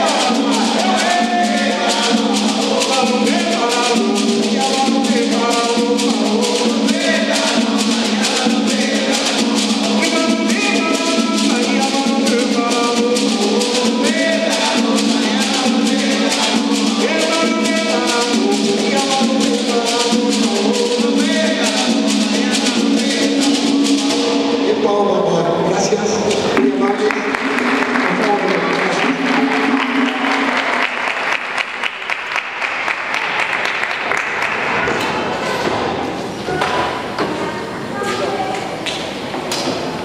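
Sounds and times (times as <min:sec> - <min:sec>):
beaded gourd shakers: 0:00.0 - 0:24.4
hand drums: 0:00.0 - 0:24.7, 0:26.4 - 0:31.6
man singing: 0:00.0 - 0:25.4.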